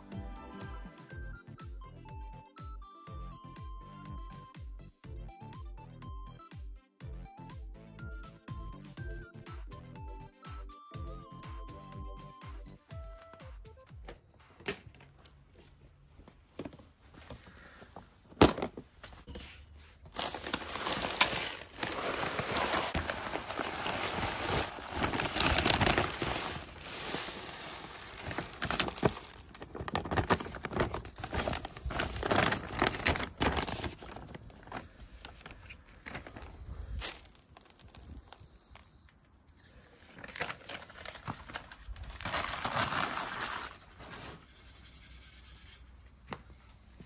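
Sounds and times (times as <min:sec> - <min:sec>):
plastic bag crinkling: 0:20.1 - 0:38.9, 0:40.2 - 0:44.0
potting mix pouring: 0:20.2 - 0:33.7.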